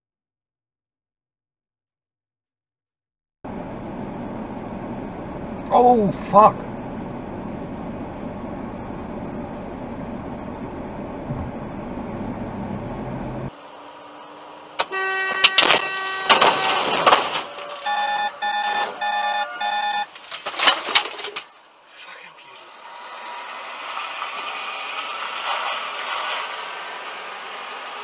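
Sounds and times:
road and engine noise inside car: 0:03.5 - 0:28.0
car horn blaring: 0:14.7 - 0:20.1, 0:22.8 - 0:23.8
loud bangs: 0:14.8 - 0:21.3
short evenly spaced beeps: 0:17.8 - 0:20.1.

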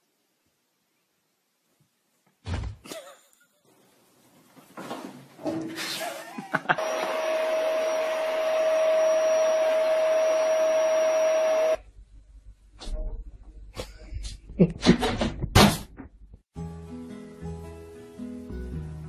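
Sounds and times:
appliance motor humming: 0:06.8 - 0:11.8.

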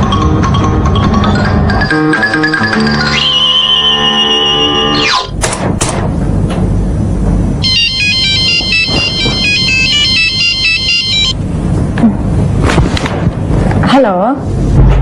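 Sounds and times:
phone ringtone beeping melody: 0:00.0 - 0:05.2, 0:07.6 - 0:11.4.

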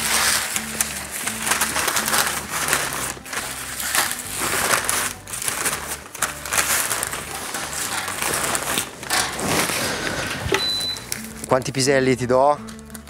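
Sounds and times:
spinach leaves rustling: 0:00.0 - 0:12.0
paper bag crinkling: 0:00.0 - 0:13.0.

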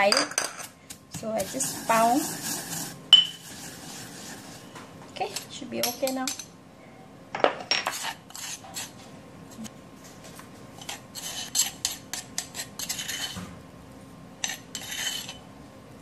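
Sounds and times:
metal spoon scraping stone mortar: 0:00.1 - 0:03.8, 0:07.8 - 0:09.0, 0:10.8 - 0:13.4, 0:14.4 - 0:15.4.

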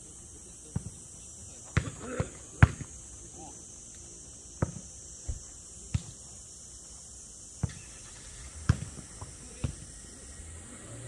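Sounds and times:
steady high hiss: 0:00.0 - 0:11.0
ball kicked and bouncing: 0:01.7 - 0:02.9, 0:07.6 - 0:07.8, 0:08.6 - 0:09.9.

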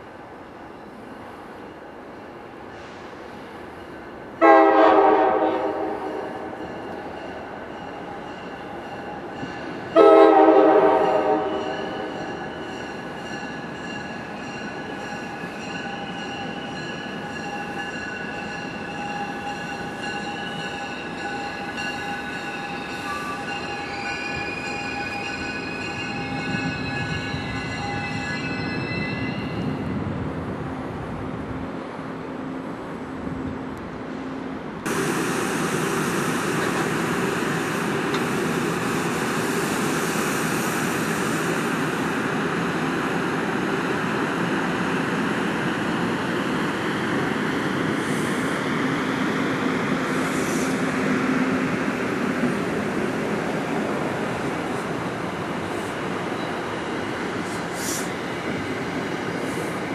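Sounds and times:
low rumble of train: 0:00.0 - 0:59.9
train wheels squealing: 0:11.4 - 0:29.8, 0:55.5 - 0:59.9.

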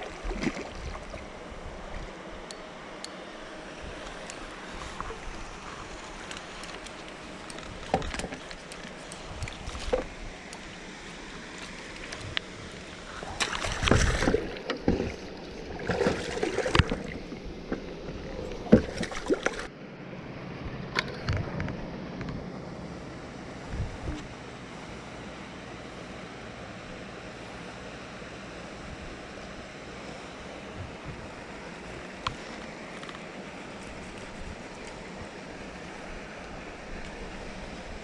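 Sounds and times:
fish splashing and thrashing in water: 0:00.0 - 0:01.4, 0:04.9 - 0:19.7.

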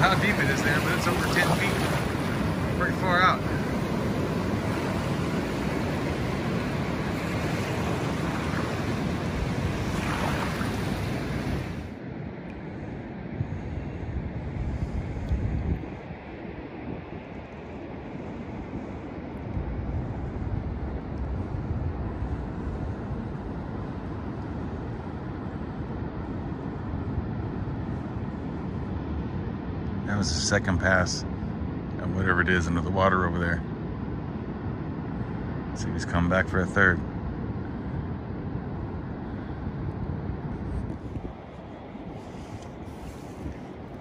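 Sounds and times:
ocean surf rushing: 0:00.0 - 0:12.1, 0:37.9 - 0:44.0
wind buffeting microphone: 0:00.0 - 0:44.0.

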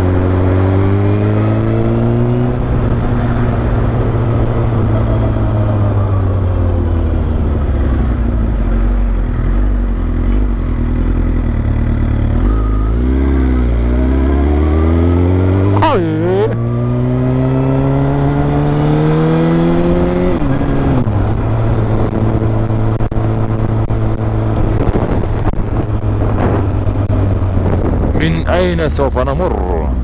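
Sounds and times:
motorcycle engine accelerating: 0:00.0 - 0:28.9.

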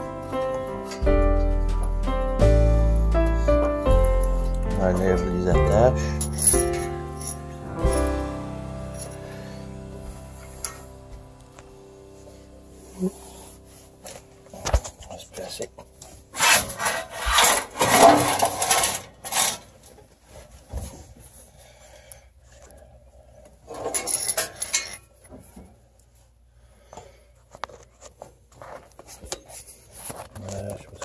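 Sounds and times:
rubbing against sheet metal: 0:16.3 - 0:19.7.

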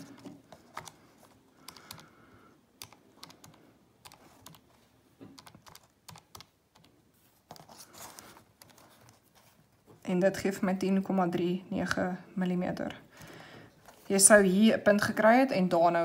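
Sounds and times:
calculator keys clicking: 0:00.1 - 0:01.0, 0:01.6 - 0:02.2, 0:02.8 - 0:04.6, 0:05.4 - 0:06.9.

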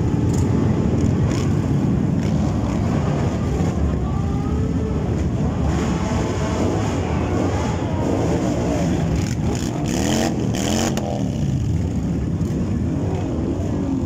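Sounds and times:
motorcycles revving past: 0:08.7 - 0:12.1.

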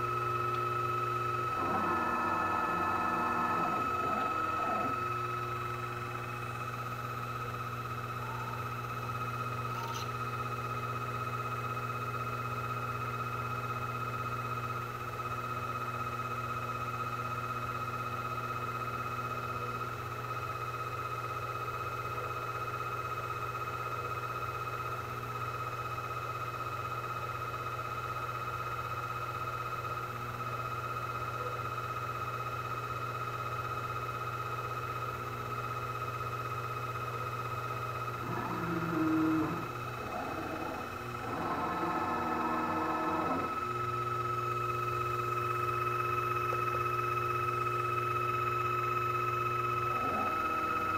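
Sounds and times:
lathe running: 0:00.0 - 0:07.4, 0:38.0 - 0:50.9.

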